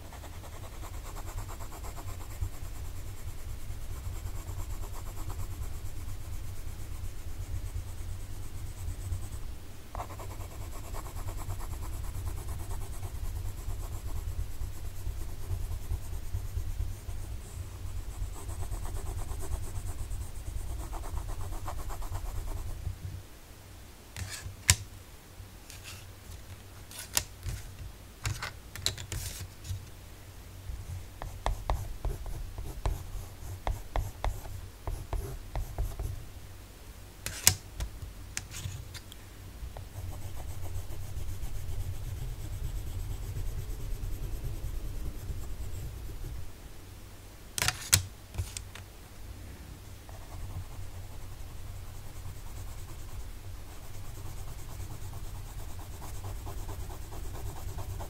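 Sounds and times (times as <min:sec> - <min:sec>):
pencil shading on paper: 0:31.2 - 0:36.1, 0:50.1 - 0:58.0.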